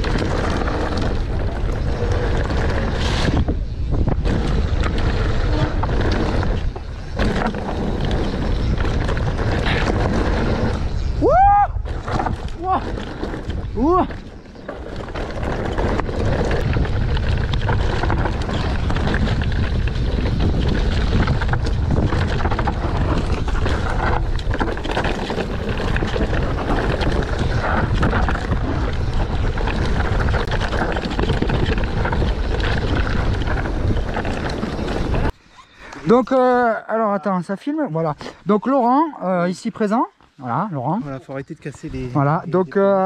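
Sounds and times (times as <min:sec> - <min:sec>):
bike knocks and rattles: 0:00.0 - 0:35.4
wind on camera microphone: 0:00.0 - 0:35.4
tyre noise on rocky trail: 0:00.0 - 0:43.0.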